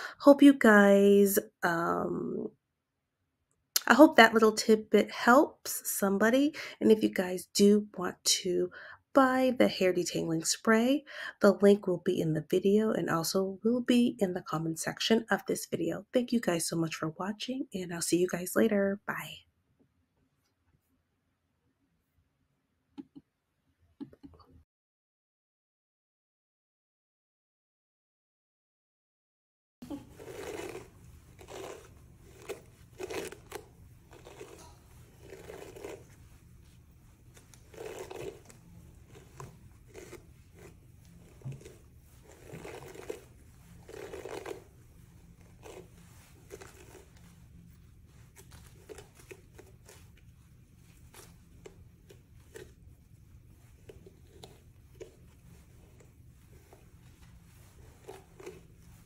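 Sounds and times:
low steady hum: 0:29.8 - 0:59.0
brush rasping through wet hair: 0:29.9 - 0:59.0.

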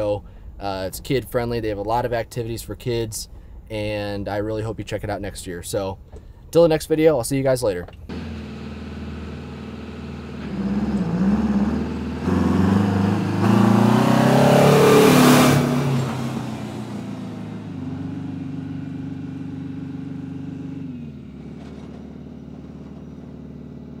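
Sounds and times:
tractor engine revving: 0:08.1 - 0:24.0.

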